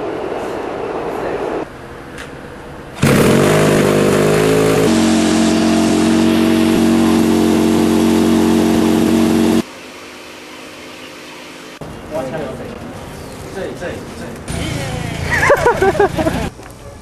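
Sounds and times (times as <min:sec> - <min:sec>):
small piston engine running: 0:03.0 - 0:09.6.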